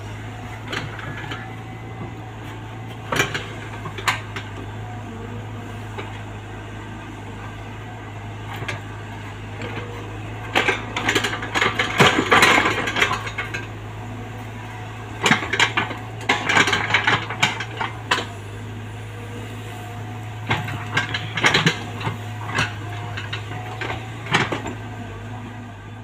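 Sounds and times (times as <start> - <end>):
excavator diesel engine running: 0.0 - 26.0
metallic clanking and rattling: 10.5 - 13.7, 15.2 - 18.3, 20.4 - 24.9.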